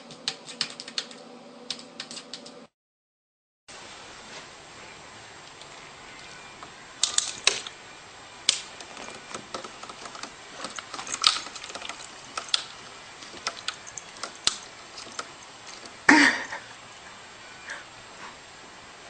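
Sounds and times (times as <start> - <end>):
cat pawing plastic clicks and taps: 8.5 - 16.1.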